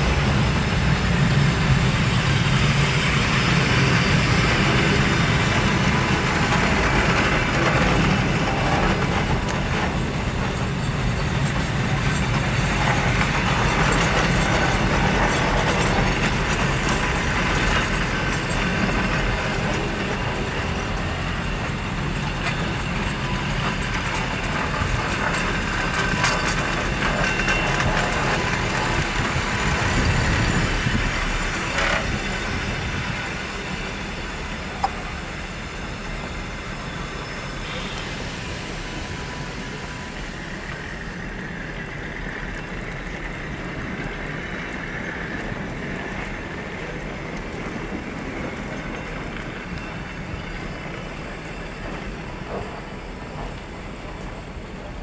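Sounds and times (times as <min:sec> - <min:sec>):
train coaches rolling past: 0:00.0 - 0:55.0
steady high hiss: 0:32.2 - 0:42.0.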